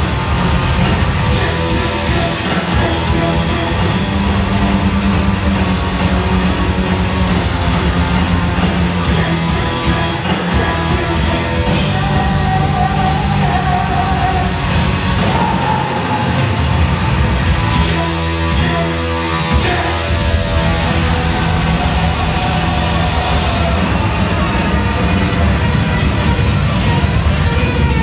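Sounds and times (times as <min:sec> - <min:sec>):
heavy metal band playing: 0:00.0 - 0:28.0.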